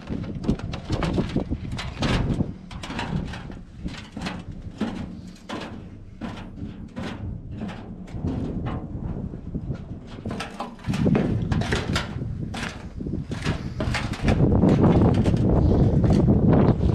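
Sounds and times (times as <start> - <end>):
boots on metal and wooden steps: 0.0 - 16.9.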